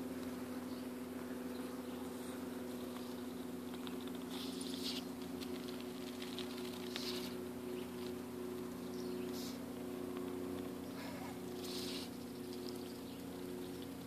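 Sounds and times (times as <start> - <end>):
steady low hum: 0.0 - 14.0
small clicks and crackles: 2.7 - 14.0
duck bill rustling in leaves: 3.7 - 8.2, 11.0 - 13.3.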